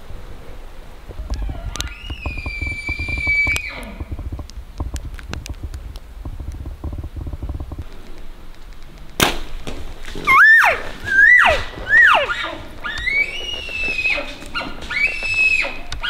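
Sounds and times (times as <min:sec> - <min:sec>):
elk mews: 0:10.2 - 0:16.0
elk whistled notes: 0:10.3 - 0:16.0.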